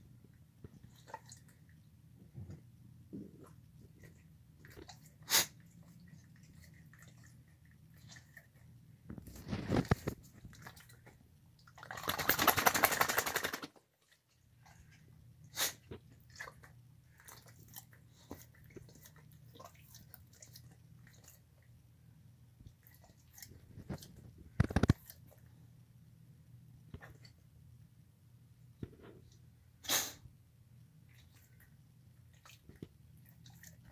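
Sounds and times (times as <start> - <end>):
dog licking and chewing food: 3.2 - 12.0, 15.9 - 21.8, 22.6 - 25.6, 31.0 - 33.9.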